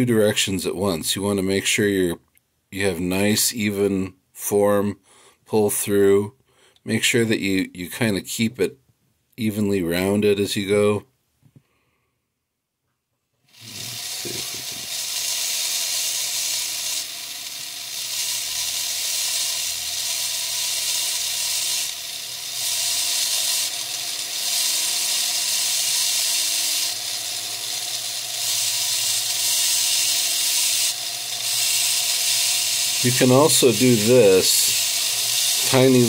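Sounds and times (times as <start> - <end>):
bit hissing cutting stone: 13.5 - 36.0
rotary tool motor whine: 13.5 - 36.0.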